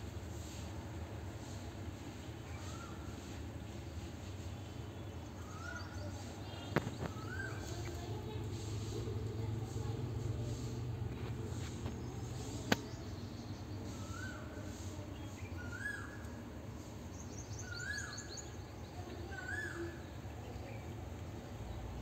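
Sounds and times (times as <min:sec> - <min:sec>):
steady low hum: 0:00.0 - 0:17.9
bird calling: 0:05.4 - 0:08.0, 0:13.9 - 0:14.6
sharp click: 0:12.6 - 0:13.0.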